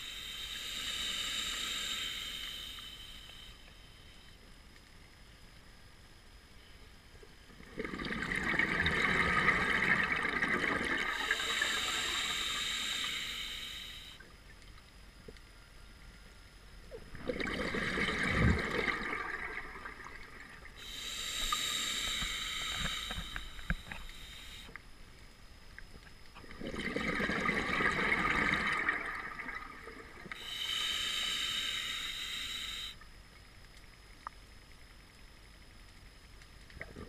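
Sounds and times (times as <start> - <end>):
regulator air hissing: 0.0 - 4.2, 11.0 - 14.2, 20.8 - 24.8, 30.3 - 33.0
regulator exhaust bubbles gurgling: 7.6 - 11.4, 17.0 - 20.8, 26.4 - 30.2.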